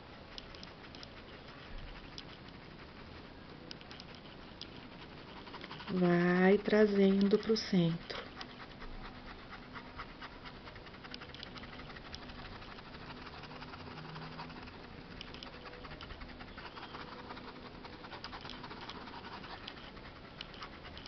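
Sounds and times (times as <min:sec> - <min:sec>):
paintbrush scrubbing fabric: 0:08.1 - 0:21.0.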